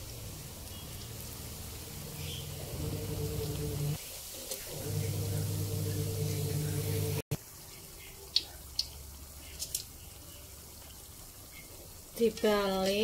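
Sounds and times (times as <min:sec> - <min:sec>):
oil popping: 0:00.0 - 0:07.2
oil sizzling: 0:00.0 - 0:13.0
low hum: 0:00.2 - 0:04.0, 0:04.7 - 0:07.3.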